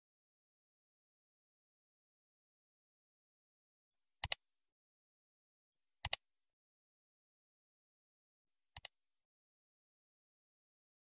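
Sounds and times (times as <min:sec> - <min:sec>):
mouse double click: 0:04.2 - 0:04.4, 0:06.0 - 0:06.2, 0:08.8 - 0:09.0.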